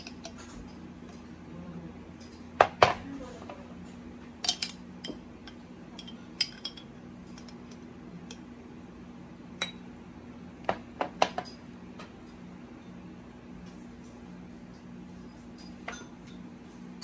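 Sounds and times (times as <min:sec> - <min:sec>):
metal spoon clinking on glass: 0:04.4 - 0:05.2, 0:06.0 - 0:07.6.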